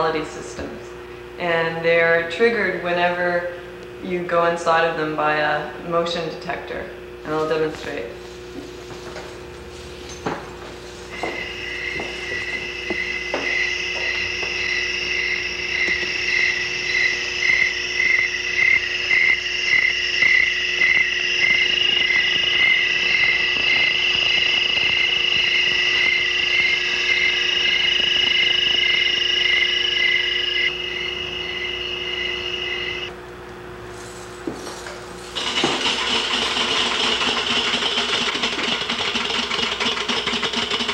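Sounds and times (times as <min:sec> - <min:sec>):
low hum: 0:10.9 - 0:34.3
high chirping tone pulsing: 0:11.1 - 0:33.2
steady high electronic tone: 0:11.1 - 0:33.2.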